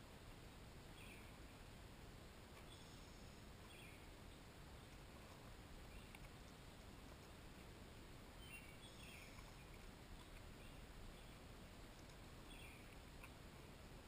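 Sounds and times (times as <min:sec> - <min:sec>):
faint outdoor hiss: 0:00.0 - 0:14.0
faint bird chirps: 0:00.9 - 0:01.6, 0:02.6 - 0:05.0, 0:05.8 - 0:06.8, 0:07.9 - 0:11.5, 0:12.4 - 0:13.4.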